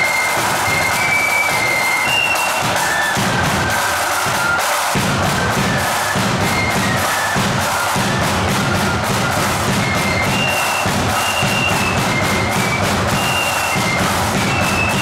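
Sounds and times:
flutes playing melody: 0.0s - 15.0s
side drums: 0.0s - 15.0s
bass drum: 5.0s - 15.0s.

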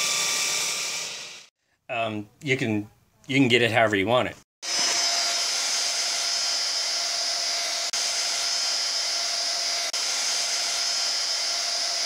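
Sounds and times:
belt grinder grinding steel: 0.0s - 1.5s.

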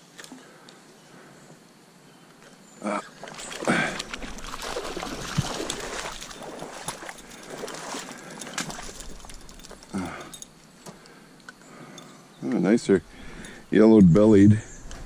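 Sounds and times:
water splashing and sloshing: 2.9s - 11.2s.

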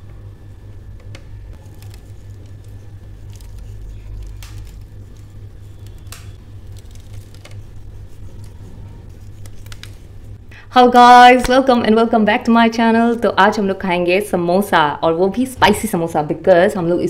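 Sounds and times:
steady low hum: 0.0s - 17.0s
soft clicks and patters of herbs: 1.5s - 10.1s.

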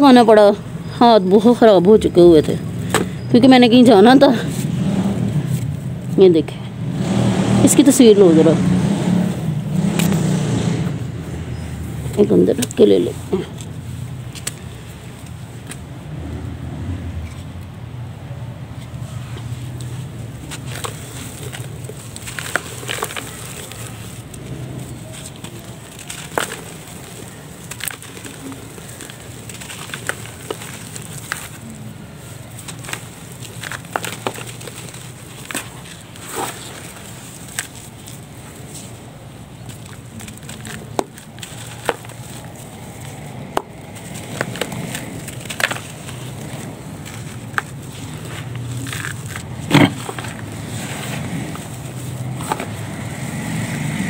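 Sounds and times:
crumbly mix squeezed by hand: 19.0s - 54.0s
sharp crackles: 19.0s - 54.0s
crumbs pattering into plastic tub: 19.5s - 53.4s.

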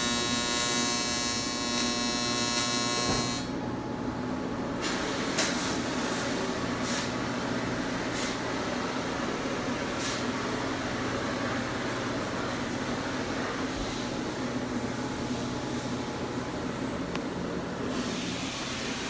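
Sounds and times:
welding arc buzzing: 0.0s - 3.6s
machine hum: 0.0s - 4.8s.

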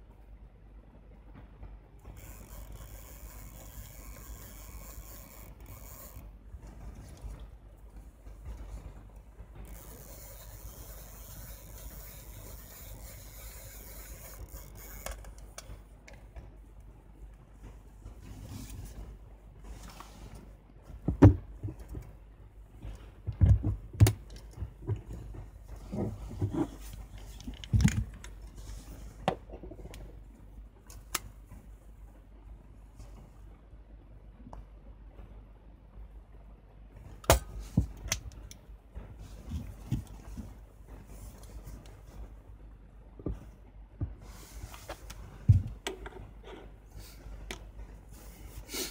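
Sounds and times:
gloves rubbing on metal: 9.7s - 15.0s.

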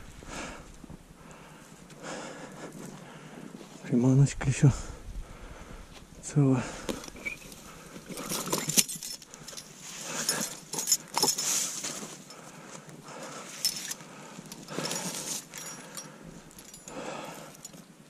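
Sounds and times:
light metallic clinks: 6.8s - 12.5s, 13.4s - 18.0s.

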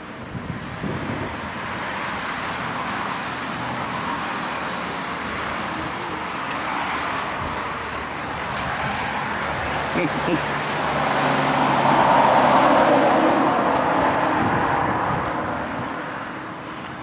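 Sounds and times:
road traffic rushing: 0.0s - 17.0s.

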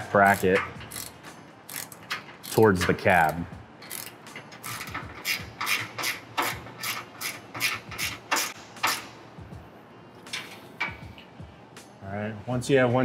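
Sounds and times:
ratchet wrench clicking: 0.2s - 9.1s.

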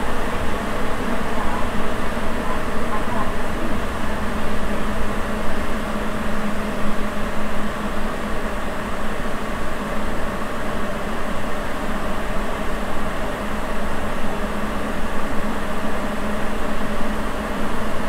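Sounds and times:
steady hum: 0.0s - 8.2s
train running through tunnel: 0.0s - 18.0s.

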